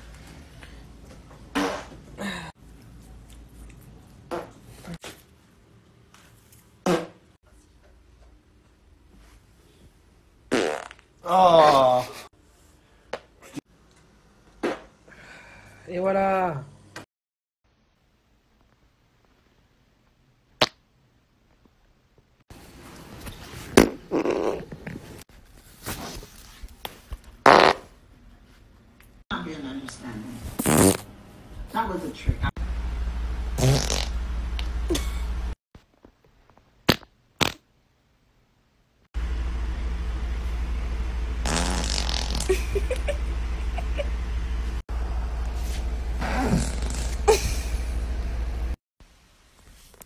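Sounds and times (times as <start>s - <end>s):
woman farting: 1.5s - 2.0s, 4.3s - 4.6s, 10.5s - 11.7s, 23.8s - 24.8s, 27.4s - 27.9s, 30.6s - 31.1s, 33.6s - 34.2s, 41.4s - 43.1s, 46.2s - 47.6s
steady low hum: 29.4s - 35.6s, 39.2s - 48.8s.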